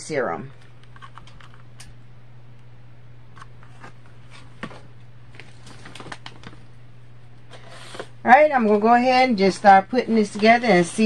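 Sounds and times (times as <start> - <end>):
steady low hum: 0.0 - 11.0
packaging clicks and rustles: 4.3 - 6.7.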